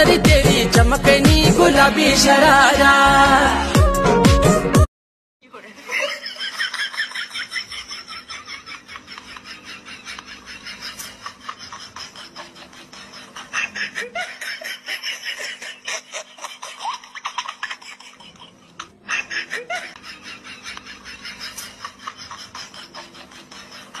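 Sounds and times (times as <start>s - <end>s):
laughter in quick bursts: 5.8s - 24.0s.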